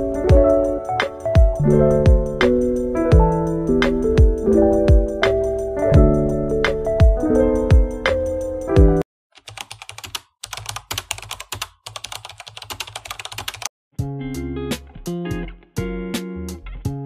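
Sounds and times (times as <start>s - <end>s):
background music: 0.0s - 9.0s
rapid keyboard typing: 9.4s - 13.7s.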